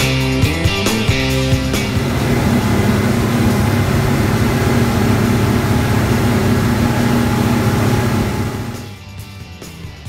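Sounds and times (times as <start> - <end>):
outboard motors humming: 1.0 - 9.0.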